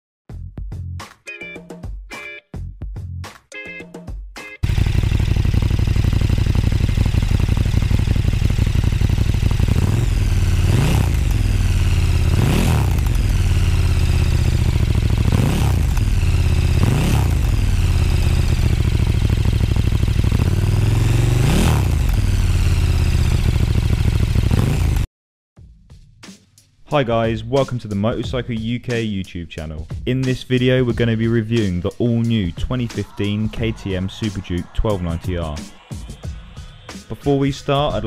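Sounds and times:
motorcycle engine idling: 4.6s - 25.1s
motorcycle throttle blips: 4.6s - 25.1s.

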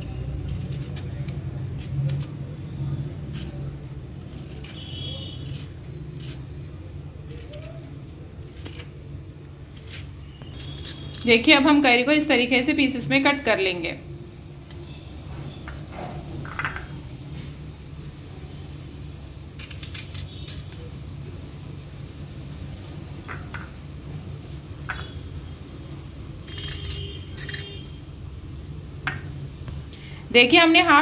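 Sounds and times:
knife slicing mango: 0.4s - 11.3s.

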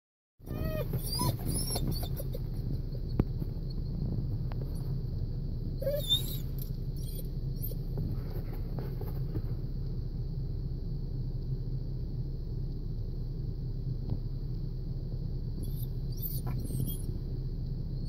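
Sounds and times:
dog whimpering: 0.4s - 2.6s, 5.8s - 7.8s, 15.6s - 17.1s
steady low rumble: 0.4s - 18.0s.

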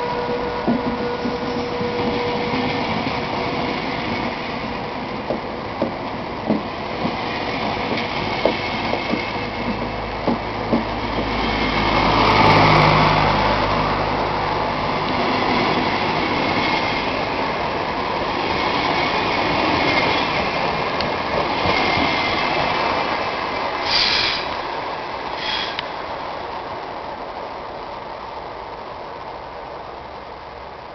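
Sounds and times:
train wheels rumbling on rail: 0.0s - 30.9s.

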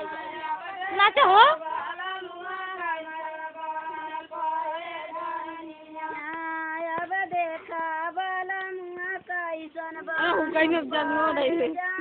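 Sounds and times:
woman singing folk song: 0.0s - 1.6s, 6.1s - 12.0s.

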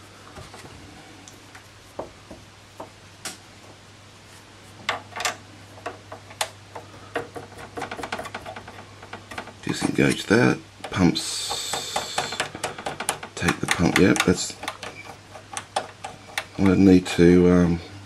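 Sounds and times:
clicks and taps on metal fittings: 4.9s - 16.9s
knobs clicking: 4.9s - 16.9s.

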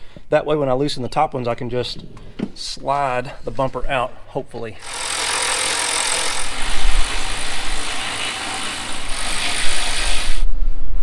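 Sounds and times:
cordless ratchet motor whirring: 4.8s - 10.5s.

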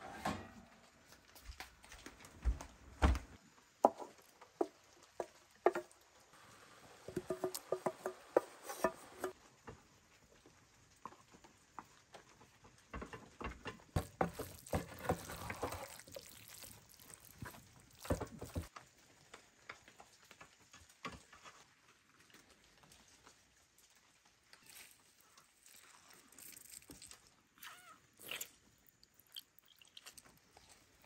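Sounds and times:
wooden spoon scraping metal pot: 7.1s - 9.4s, 14.0s - 18.7s
wet squelching: 14.3s - 18.7s.

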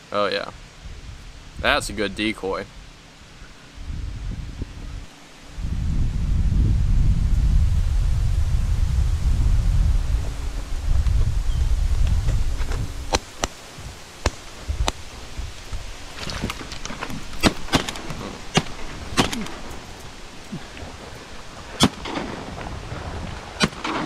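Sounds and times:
wind buffeting microphone: 0.5s - 24.0s
shotgun blasts: 17.4s - 19.7s, 21.8s - 22.6s.

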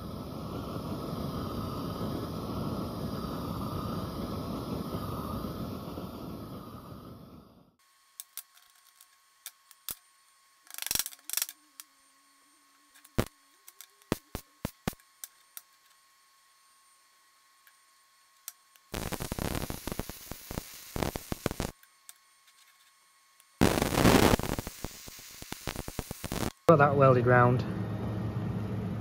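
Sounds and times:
arc welder crackling: 7.8s - 12.1s, 12.7s - 16.1s, 17.6s - 26.8s.

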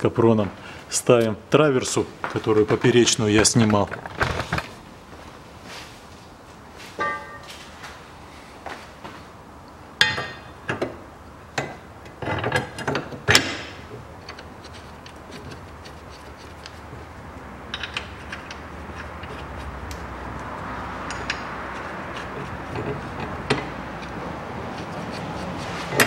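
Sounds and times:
metal clanks and knocks: 7.0s - 7.6s, 10.0s - 11.0s, 17.7s - 19.6s, 21.0s - 25.1s.

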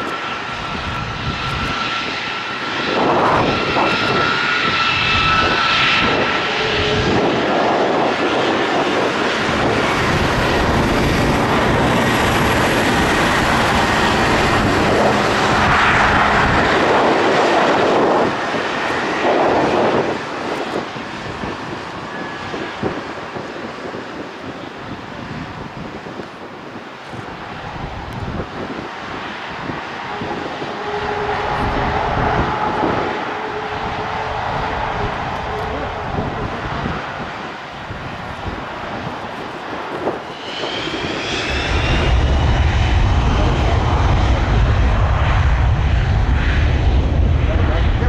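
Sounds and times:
jet engines taxiing: 0.0s - 48.0s
steady engine whine: 0.0s - 48.0s.

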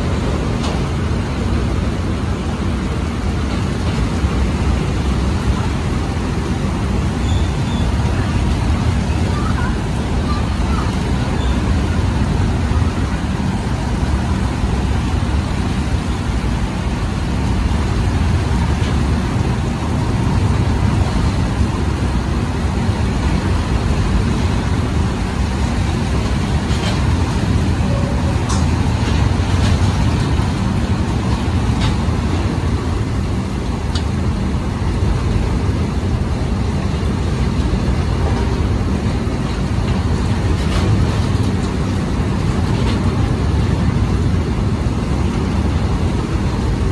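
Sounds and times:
freight train rumbling past: 0.0s - 46.9s.

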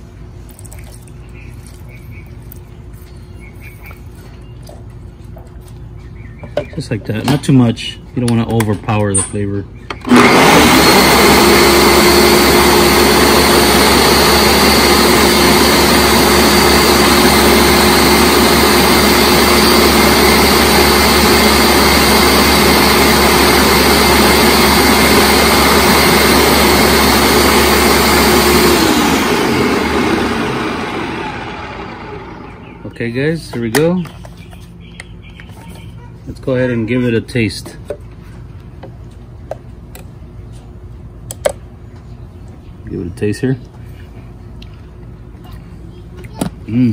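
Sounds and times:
blender blades spinning down: 10.0s - 33.0s
blender motor whining: 10.0s - 33.0s.

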